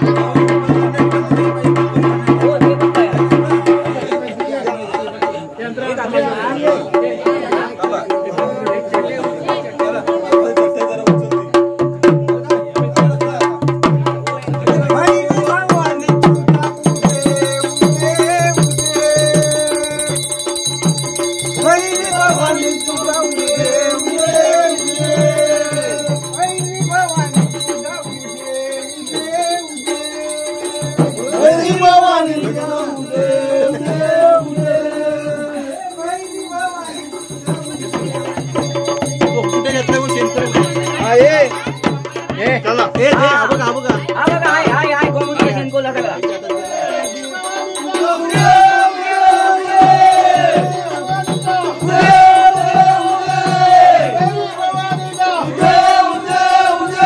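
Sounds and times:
drum beaten with sticks: 0:00.0 - 0:57.0
voices singing devotional melody: 0:00.0 - 0:57.0
hand bell ringing: 0:14.8 - 0:57.0.

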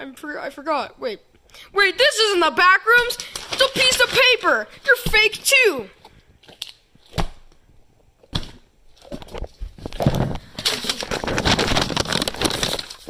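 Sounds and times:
crinkling and rustling: 0:03.0 - 0:13.0.

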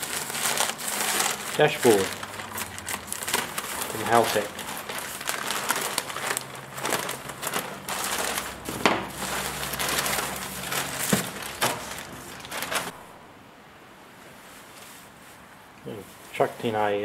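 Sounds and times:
crinkling plastic and bubble wrap: 0:00.0 - 0:13.0.

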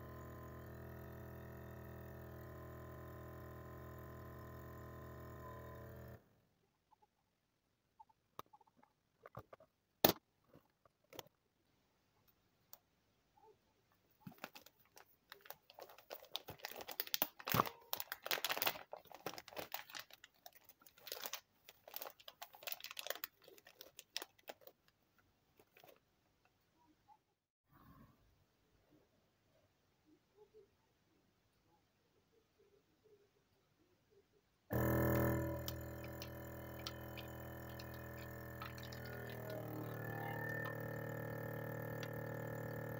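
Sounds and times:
plastic bag crinkling: 0:14.2 - 0:25.0, 0:35.6 - 0:42.9
small clicks: 0:34.7 - 0:42.9.

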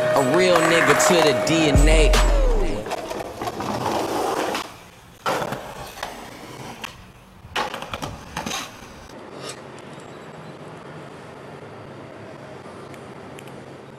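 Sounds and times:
skateboard rolling on concrete: 0:00.0 - 0:02.0, 0:02.7 - 0:10.0
skateboard impacts: 0:00.2 - 0:01.7, 0:02.7 - 0:09.0.

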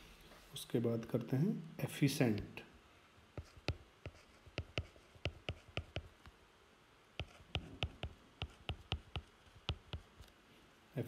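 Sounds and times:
stylus tapping on screen: 0:03.3 - 0:06.4, 0:07.2 - 0:10.3.

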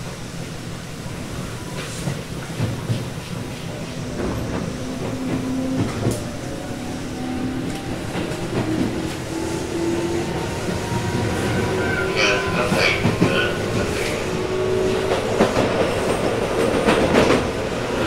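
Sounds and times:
train wheel noise: 0:00.0 - 0:18.0.

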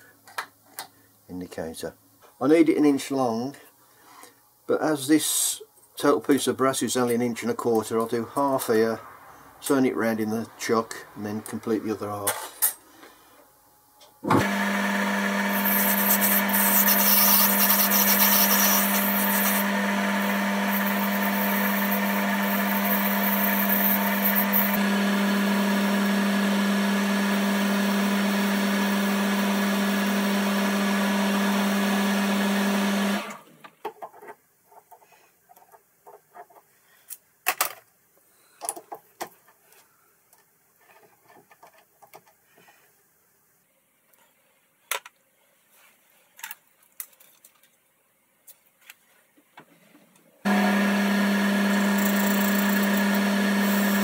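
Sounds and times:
lathe humming: 0:14.4 - 0:33.4, 0:50.5 - 0:54.0.

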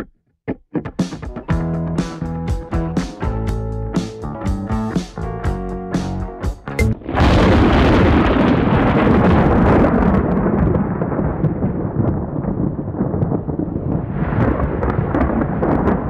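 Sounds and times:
thunder crack and rumble: 0:07.0 - 0:16.0.

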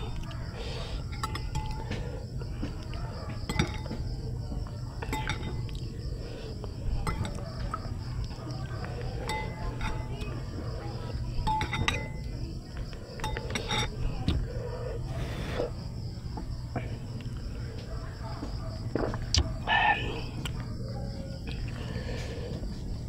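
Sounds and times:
metal spoon clinking on glass bowl: 0:01.1 - 0:01.8, 0:03.5 - 0:04.1, 0:05.0 - 0:05.8, 0:07.0 - 0:07.8, 0:09.2 - 0:10.3, 0:11.4 - 0:12.3, 0:13.2 - 0:14.0.

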